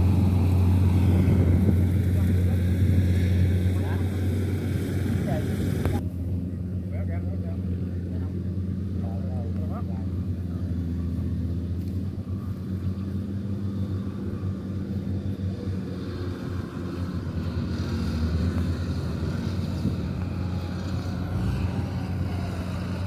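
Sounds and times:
combine harvester engine droning: 0.0 - 23.0.

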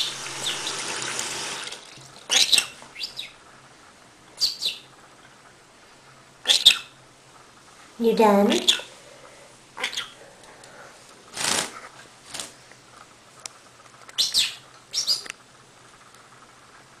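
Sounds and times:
parrot chittering: 0.0 - 1.0, 2.3 - 3.4, 4.4 - 4.9, 6.4 - 7.0, 8.5 - 9.0, 9.8 - 10.2, 14.1 - 15.4
wings flapping: 11.3 - 12.6.

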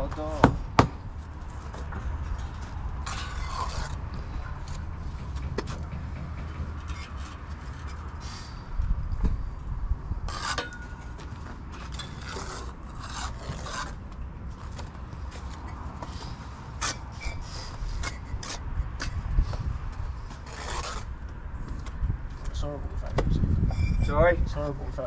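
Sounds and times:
trowel scraping mortar on bricks: 2.4 - 4.8, 10.3 - 11.2, 11.8 - 14.0, 15.5 - 19.2, 20.2 - 21.2.

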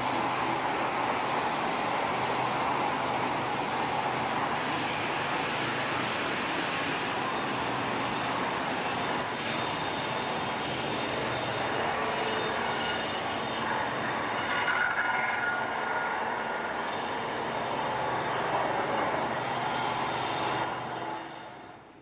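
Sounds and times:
sawmill machinery din: 0.0 - 22.0
high squeal: 8.9 - 17.8.

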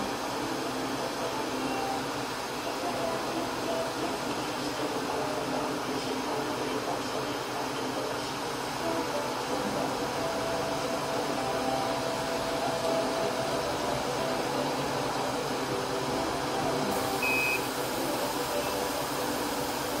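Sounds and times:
laser cutter fans whirring: 0.0 - 20.0
short high beep: 17.2 - 17.7.

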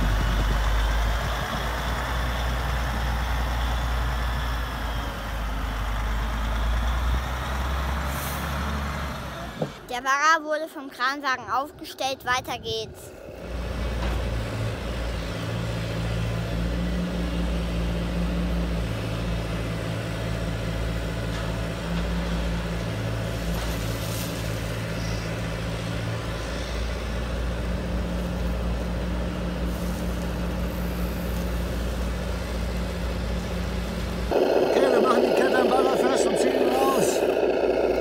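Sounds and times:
model excavator hydraulic hum: 36.4 - 38.0.

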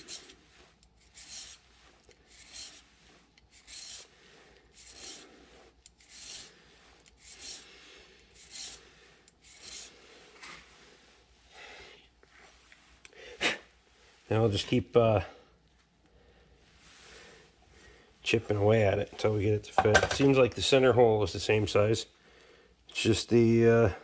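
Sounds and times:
flat file scraping metal: 0.0 - 10.2.

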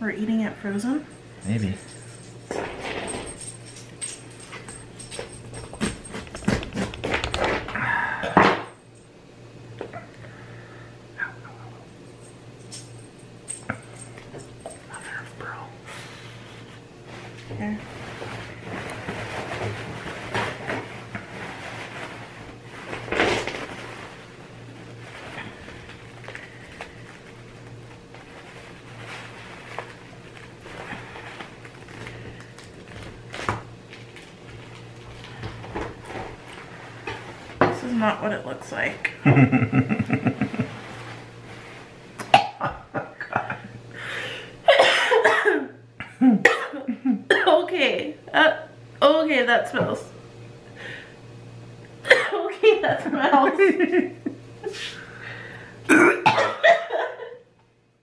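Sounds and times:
paper towel rustling: 17.0 - 37.6, 40.2 - 42.2
stifled laughter: 39.2 - 40.8
people gagging and coughing: 44.7 - 47.5, 55.9 - 57.0.

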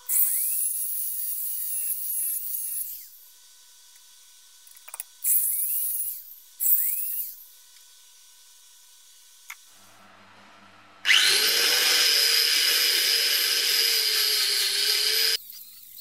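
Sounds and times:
rotary tool whining: 0.0 - 4.0, 4.8 - 8.0, 11.0 - 16.0.

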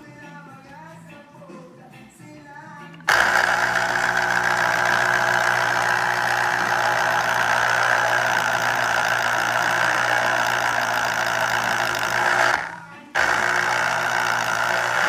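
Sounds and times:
citrus juicer motor whirring: 3.0 - 15.0.

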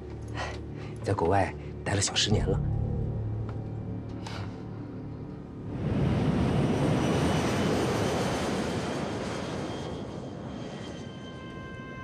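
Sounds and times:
jet engine roar: 5.7 - 11.7.

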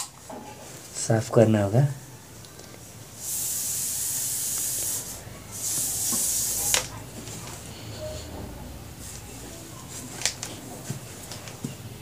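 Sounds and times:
steam iron hissing: 3.1 - 8.2.

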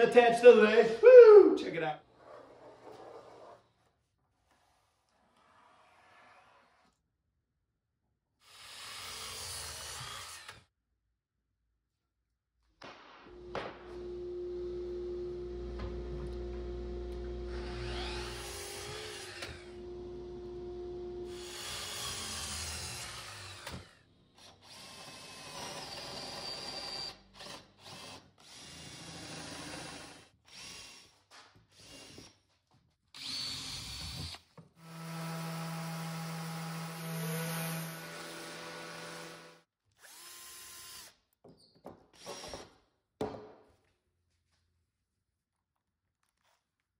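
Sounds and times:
cordless drill whirring: 8.5 - 10.6, 16.3 - 32.3, 33.2 - 41.2
miter saw cutting wood: 8.5 - 10.6, 13.4 - 23.9, 33.2 - 39.6.

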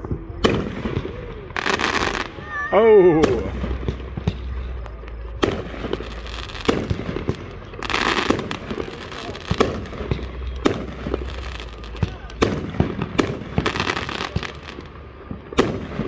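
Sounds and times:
firework bangs: 0.0 - 16.0
firework crackling: 0.0 - 16.0.

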